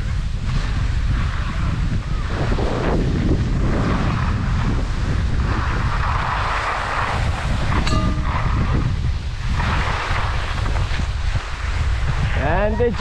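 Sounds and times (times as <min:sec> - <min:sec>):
wind buffeting microphone: 0:00.0 - 0:13.0
skis scraping over snow: 0:00.4 - 0:07.7, 0:09.6 - 0:13.0.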